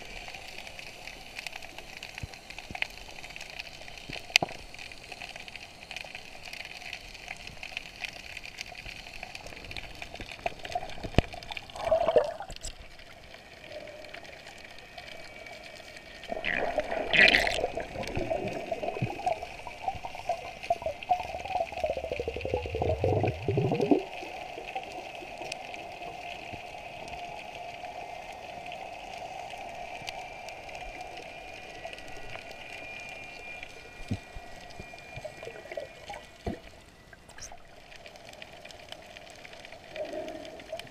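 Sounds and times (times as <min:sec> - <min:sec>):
faint hum: 0:00.0 - 0:40.9
underwater wash of water: 0:00.0 - 0:40.9
rush of water: 0:09.4 - 0:27.9.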